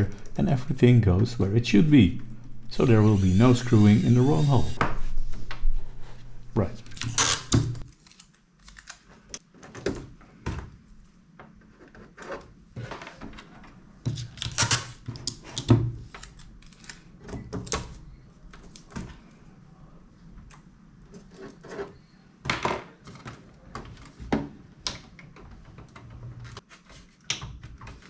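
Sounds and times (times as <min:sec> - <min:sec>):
paper and tape rustling: 0:06.8 - 0:09.5, 0:16.0 - 0:17.1.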